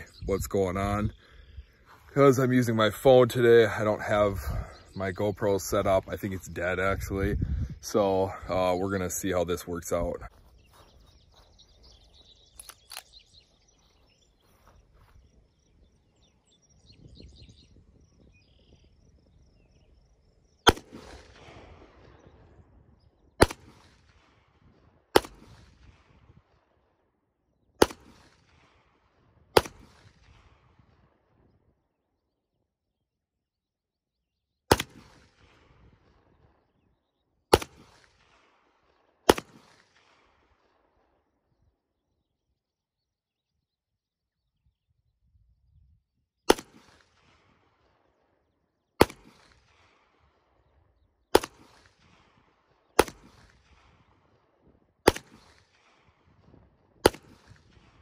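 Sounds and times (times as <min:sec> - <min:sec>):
pistol shots with echo: 0:20.6 - 0:22.4, 0:23.4 - 0:26.3, 0:27.8 - 0:29.0, 0:29.6 - 0:30.8, 0:34.7 - 0:35.8, 0:37.5 - 0:40.8, 0:46.5 - 0:47.8, 0:49.0 - 0:50.4, 0:51.3 - 0:54.4, 0:55.0 - 0:58.0.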